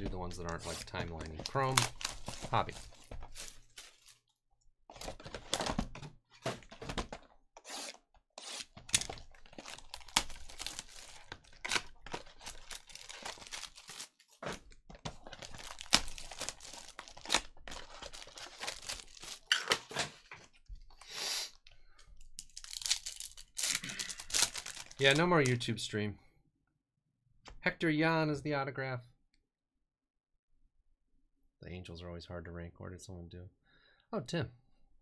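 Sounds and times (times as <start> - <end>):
packaging being torn open: 7.8 - 14.6, 15.2 - 20.0, 22.4 - 25.6.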